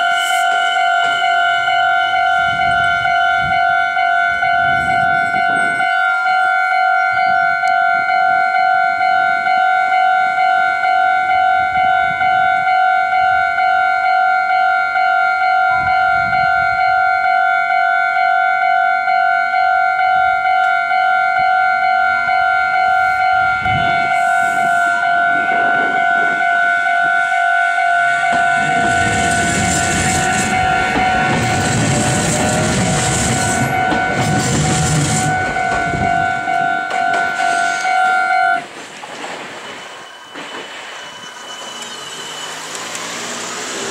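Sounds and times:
train wheels rumbling on rails: 0.0 - 12.7, 22.0 - 43.9
level crossing bell ringing: 0.0 - 38.7.

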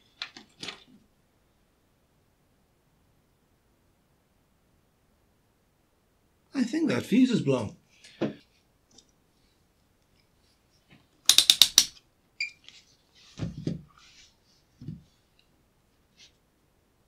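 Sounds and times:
rotary switch clicking: 11.3 - 11.9.

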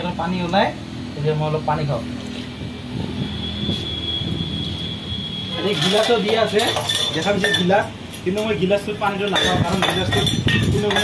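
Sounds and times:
metal chain and cup clinking: 5.6 - 7.8, 9.2 - 11.0.

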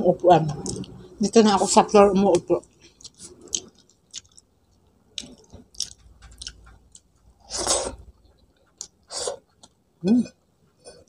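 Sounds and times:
person chewing food: 0.6 - 1.1, 2.6 - 11.0.

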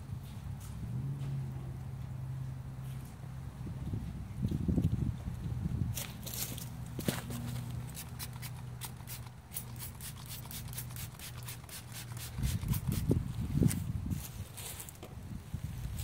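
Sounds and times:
hand wiping wheel spokes: 6.2 - 15.0.

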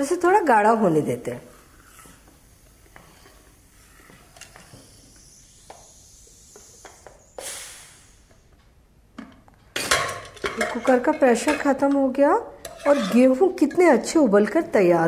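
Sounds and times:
steam hissing: 1.5 - 8.5.

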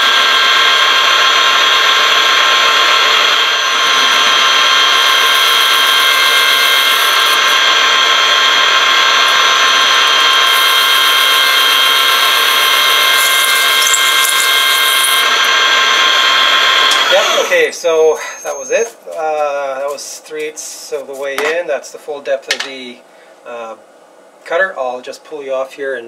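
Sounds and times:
metal lathe whine: 0.0 - 19.0
high hiss of tool cutting: 9.3 - 15.5.

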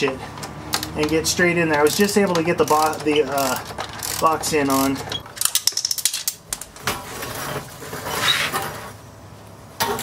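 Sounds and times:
wrench ratcheting clicks: 0.4 - 6.0
tool scraping against frame: 7.1 - 9.0.

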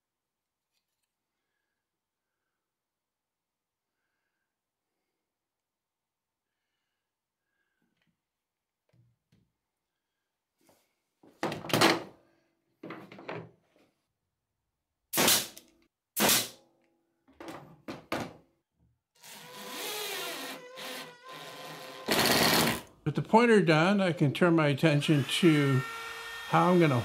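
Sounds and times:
nail gun firing: 15.1 - 15.6, 16.2 - 16.6, 22.0 - 22.9
small motor running: 25.1 - 27.0.

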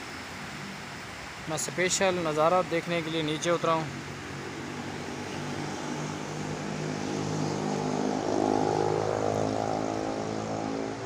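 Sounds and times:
stream flowing over rocks: 0.0 - 11.0
engine drone: 3.9 - 11.0.

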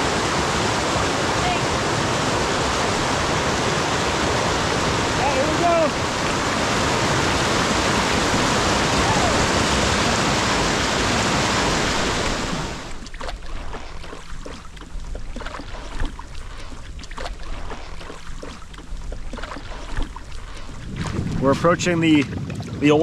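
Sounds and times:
whitewater rapids rushing: 0.0 - 13.0
light water noise: 0.0 - 23.0
wind: 0.0 - 23.0.

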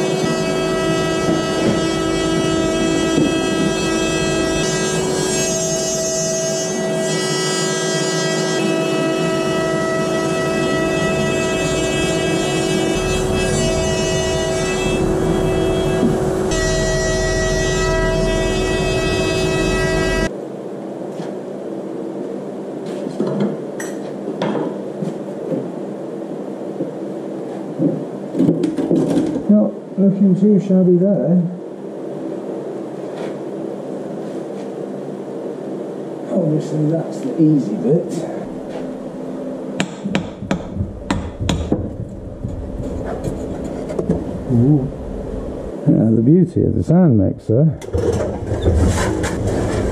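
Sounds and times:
induction heater humming and whining: 0.0 - 49.9
hammer knocking on wood: 39.8 - 43.3.

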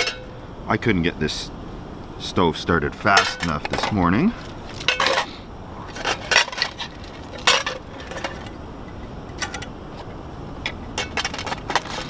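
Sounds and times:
metal cookware clinking: 0.0 - 0.3, 3.1 - 3.6.

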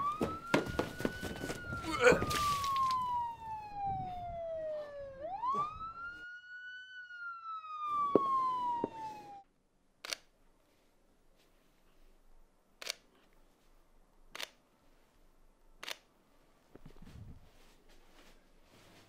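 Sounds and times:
police siren wailing: 0.0 - 9.4.

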